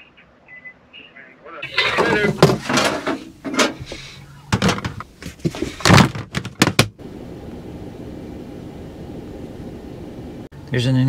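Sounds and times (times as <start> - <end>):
low background hum: 0.0 - 11.0
knocks and thumps: 1.7 - 7.0.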